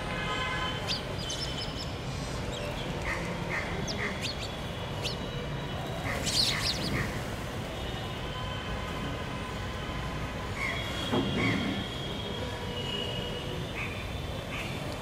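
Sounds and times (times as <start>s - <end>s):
sparrows chirping: 0.7s - 7.2s.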